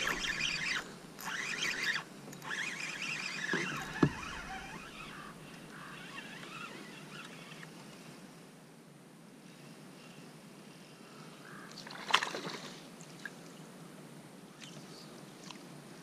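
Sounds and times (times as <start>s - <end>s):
fishing reel cranking: 0.0s - 7.6s.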